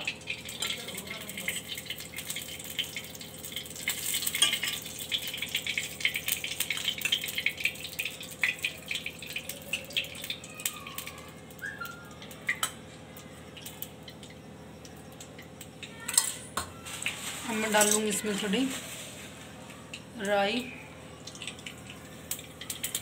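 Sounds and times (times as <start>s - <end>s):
oil crackling and sizzling: 0.0s - 23.0s.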